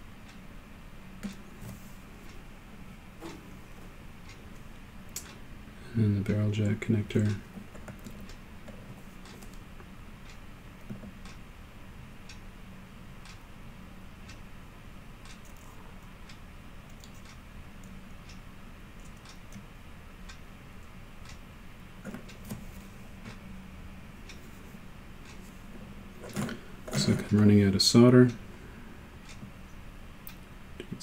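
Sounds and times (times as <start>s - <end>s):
steady low hum: 0.0s - 31.0s
faint regular ticking: 0.1s - 1.5s, 2.1s - 31.0s.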